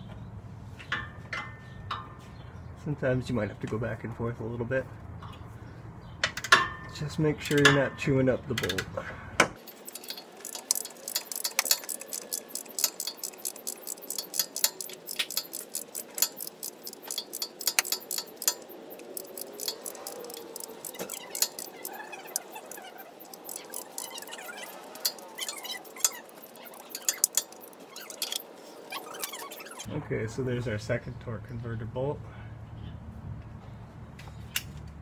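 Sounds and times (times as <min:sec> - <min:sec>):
wrench clicking on metal bolt: 0:07.4 - 0:07.9, 0:09.6 - 0:29.7.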